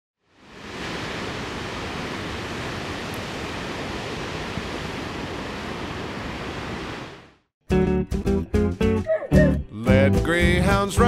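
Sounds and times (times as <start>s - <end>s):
ocean surf rushing: 0.3s - 7.4s.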